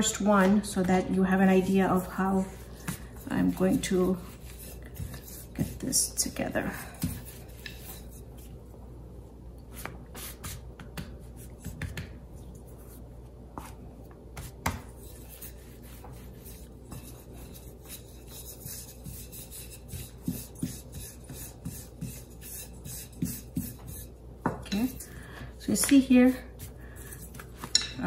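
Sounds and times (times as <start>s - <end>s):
rolling pin rubbing on dough: 0.0s - 8.7s, 14.4s - 25.1s.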